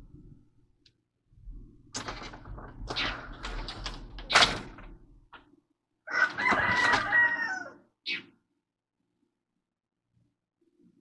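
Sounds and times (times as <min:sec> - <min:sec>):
rooster crowing: 0:06.1 - 0:07.8.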